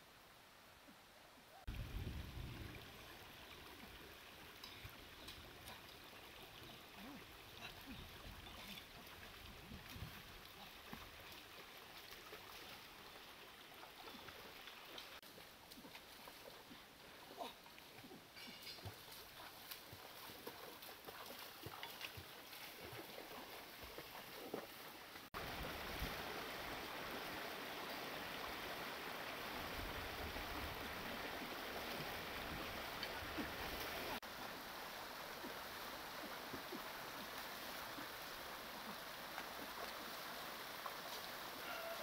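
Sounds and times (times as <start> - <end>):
feet wading through water: 5.2 - 18.2, 18.8 - 26.9
stream rushing over rocks: 22.0 - 42.0.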